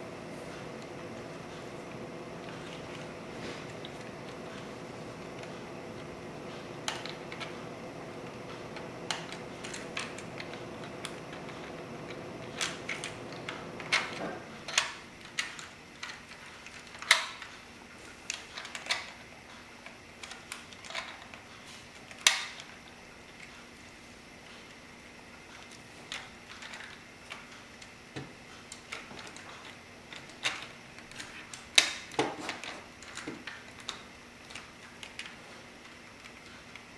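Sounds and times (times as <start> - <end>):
steady hum: 0.0 - 36.9
plastic bricks clicking and clacking: 13.9 - 17.5.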